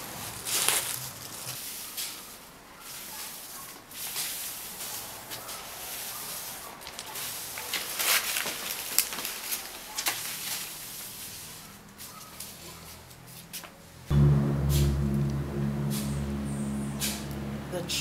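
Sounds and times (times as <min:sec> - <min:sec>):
loud low steady hum: 0:14.1 - 0:18.0.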